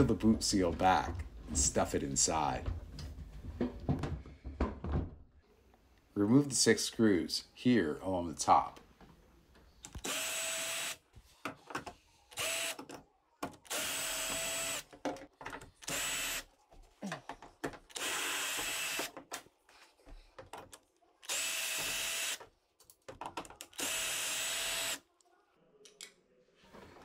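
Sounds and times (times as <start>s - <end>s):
cordless drill running: 10.0s - 11.0s, 12.4s - 12.8s, 13.7s - 14.8s, 15.9s - 16.4s, 17.9s - 19.1s, 21.2s - 22.4s, 23.8s - 25.0s.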